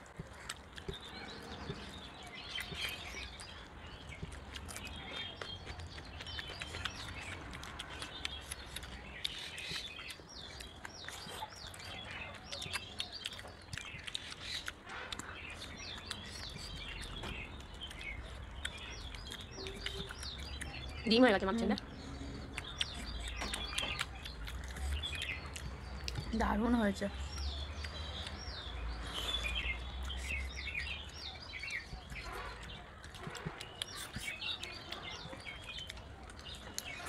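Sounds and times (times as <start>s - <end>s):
birds chirping: 0.0s - 37.0s
chewing: 0.0s - 37.0s.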